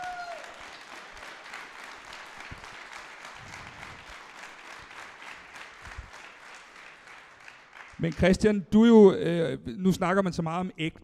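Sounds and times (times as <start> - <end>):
audience applauding: 0.0 - 8.4.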